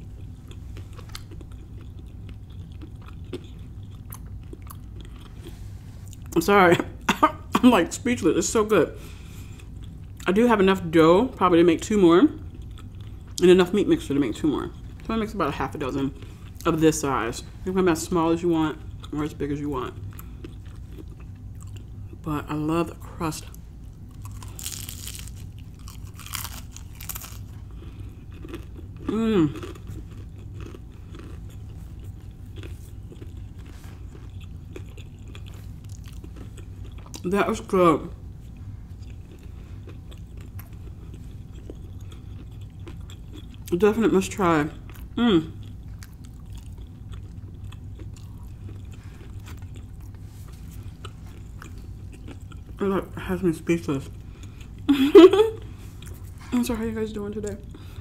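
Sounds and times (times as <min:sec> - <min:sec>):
close-up chewing: 0:00.0 - 0:06.4, 0:09.4 - 0:10.2, 0:12.4 - 0:13.4, 0:18.9 - 0:19.2, 0:19.9 - 0:22.2, 0:23.8 - 0:37.3, 0:38.4 - 0:43.8, 0:44.8 - 0:52.8, 0:55.9 - 0:56.5
crunching fried pastry: 0:23.8 - 0:37.3, 0:38.5 - 0:52.8
person humming mmm: 0:29.0 - 0:29.8, 0:45.2 - 0:45.6.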